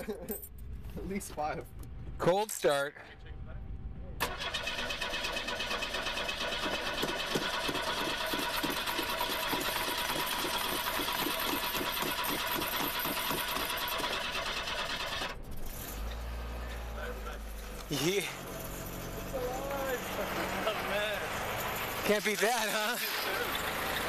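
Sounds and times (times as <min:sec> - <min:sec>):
car starter cranking engine: 0:04.2 - 0:16.9.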